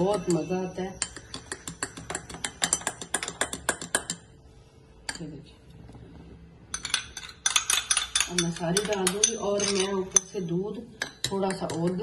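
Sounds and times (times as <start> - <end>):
spoon clinking in glass mug: 0.0 - 4.2, 6.8 - 10.4.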